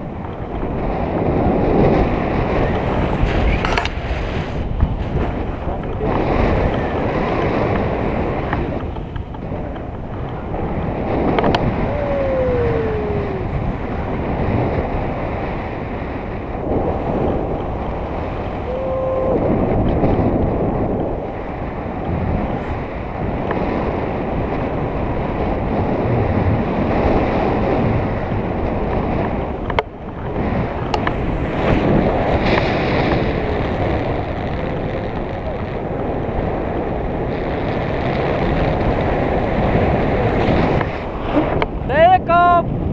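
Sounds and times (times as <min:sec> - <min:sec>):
wind rushing over microphone: 0:00.0 - 0:42.9.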